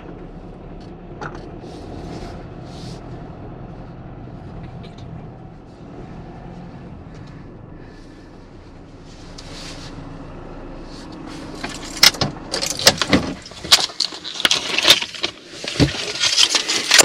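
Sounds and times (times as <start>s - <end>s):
van engine running: 0.0s - 17.0s
clicks and rattles of handling: 11.6s - 17.0s.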